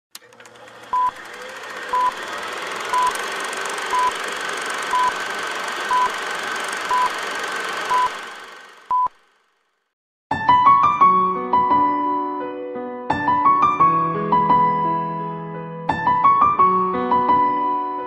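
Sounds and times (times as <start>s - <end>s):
film projector whirring and clattering: 0.1s - 9.6s.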